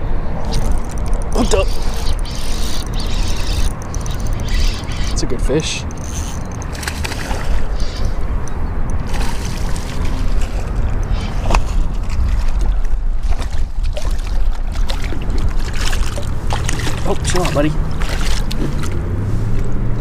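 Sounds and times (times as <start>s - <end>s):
wind rumbling on microphone: 0.0s - 20.0s
fish splashing in water: 6.1s - 8.2s, 9.0s - 19.0s.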